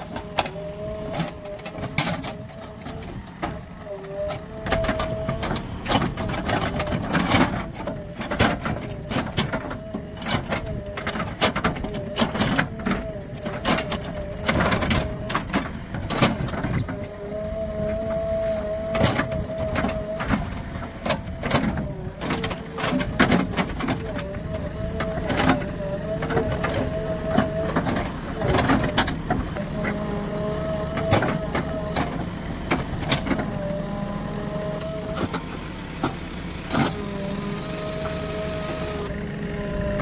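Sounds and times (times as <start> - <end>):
diesel engine whining under load: 0.0 - 40.0.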